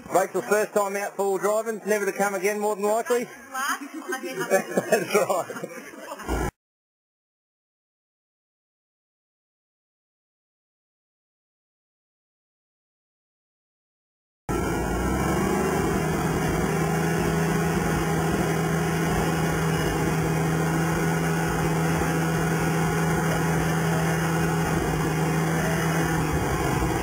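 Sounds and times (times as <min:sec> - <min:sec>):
vehicle engine running: 0:14.5 - 0:27.0
winch humming: 0:14.5 - 0:27.0.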